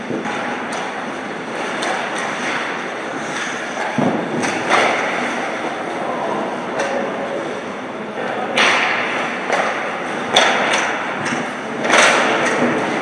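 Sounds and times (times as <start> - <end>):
hockey sticks and puck clacking: 0.0 - 6.0, 8.2 - 13.0
arena background noise: 0.0 - 13.0.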